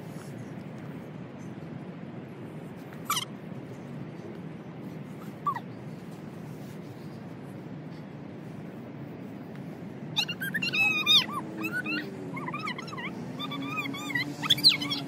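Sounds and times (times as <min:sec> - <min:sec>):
low background rumble: 0:00.0 - 0:15.0
child squealing: 0:10.2 - 0:15.0.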